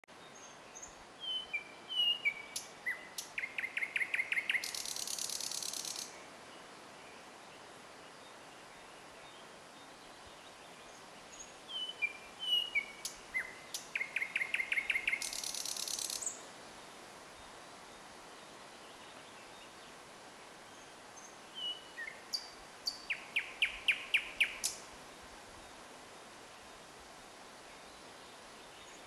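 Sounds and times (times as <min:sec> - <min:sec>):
nightingale singing: 0:00.2 - 0:06.2, 0:10.9 - 0:16.4, 0:20.7 - 0:24.9.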